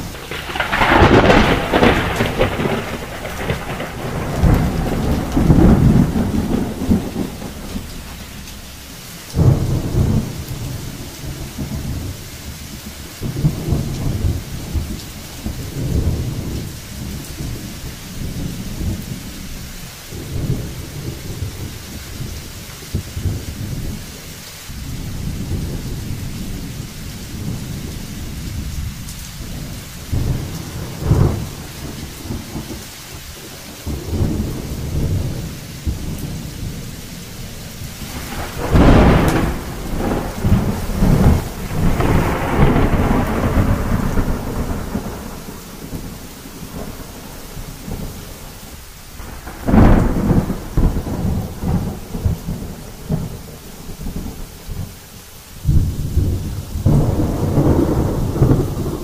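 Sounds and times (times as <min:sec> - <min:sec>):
loud thunderclap: 0:00.0 - 0:12.2, 0:13.2 - 0:19.2, 0:27.3 - 0:32.8, 0:33.8 - 0:37.0, 0:37.8 - 0:48.4, 0:49.2 - 0:54.9, 0:55.6 - 0:59.0
rolling thunder: 0:00.0 - 0:55.0, 0:55.6 - 0:59.0
steady rain falling: 0:00.0 - 0:59.0.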